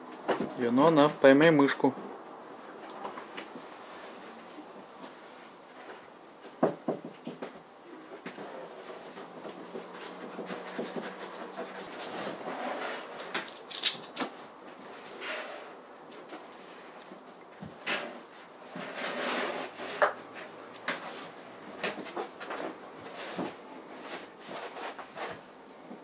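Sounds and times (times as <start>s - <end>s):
scratching on cardboard: 8.0s - 14.1s, 14.8s - 26.0s.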